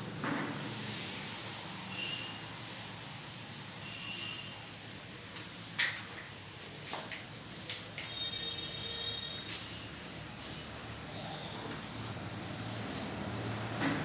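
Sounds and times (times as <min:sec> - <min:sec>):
room hiss: 0:00.0 - 0:13.7
cloth duster rubbing chalkboard: 0:06.8 - 0:13.8.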